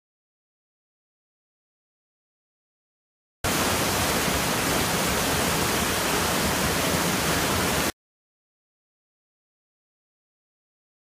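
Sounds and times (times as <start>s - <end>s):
stream cascading over rocks: 3.5s - 7.9s.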